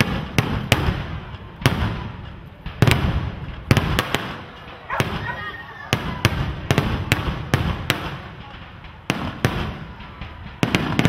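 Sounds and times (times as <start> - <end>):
fireworks bursting with rumble: 0.0 - 11.0.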